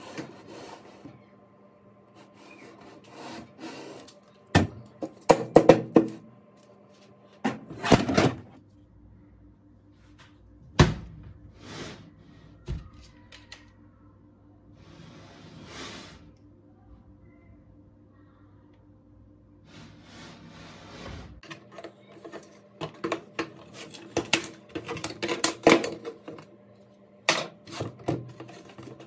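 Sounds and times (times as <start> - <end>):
plastic and metal parts clattering: 21.4 - 26.4.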